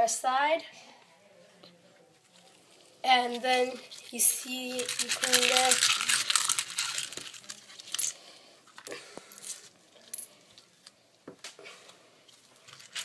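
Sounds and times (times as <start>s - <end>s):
coins rubbing and sloshing in water: 3.1s - 8.3s.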